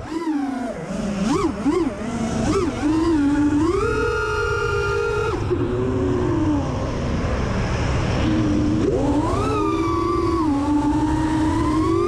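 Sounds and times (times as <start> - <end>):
quadcopter motors whining: 0.0 - 12.0
steady low rumble: 4.7 - 12.0
rush of air: 5.5 - 9.8.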